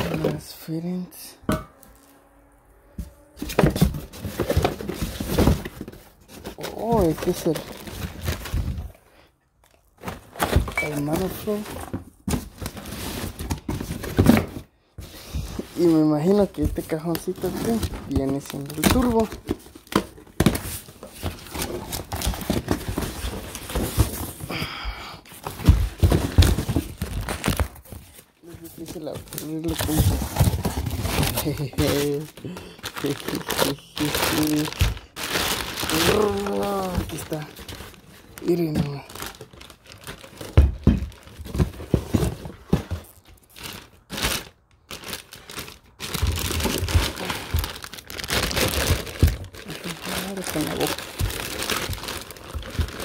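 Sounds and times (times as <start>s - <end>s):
cardboard and plastic rustling: 0.0s - 53.0s
plastic wrapping crinkling: 9.6s - 11.7s, 15.8s - 24.4s, 25.9s - 53.0s.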